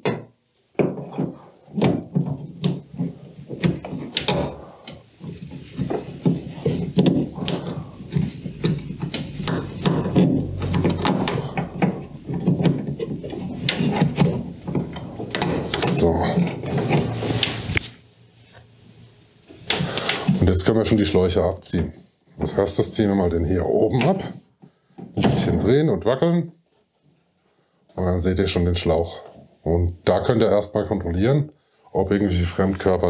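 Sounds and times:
rubbing of rubber hoses: 0.8 - 18.0.

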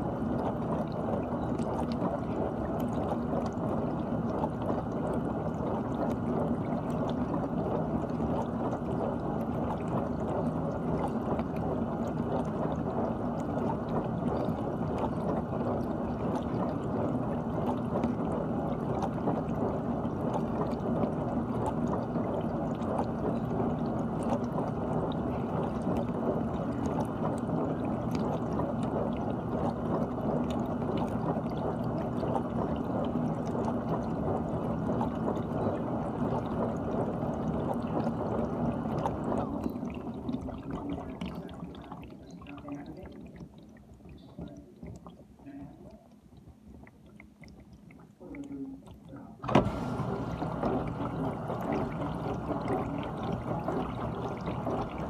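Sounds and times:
low hum: 48.2 - 55.0
dishwasher water spraying: 49.4 - 55.0.

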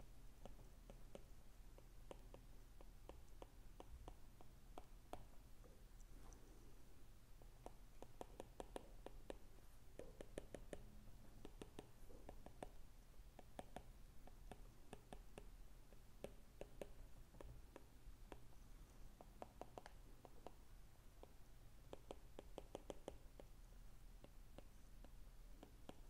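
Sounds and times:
stylus tapping on glass screen: 10.0 - 12.8, 21.2 - 23.5.

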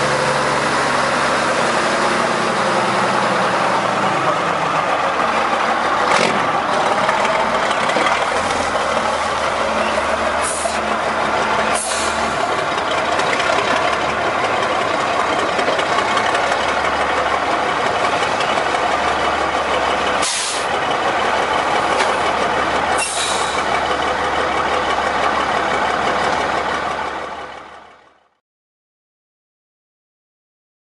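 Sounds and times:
truck engine idling: 0.0 - 28.4
brief sharp hisses: 20.2 - 20.7, 23.0 - 23.6.

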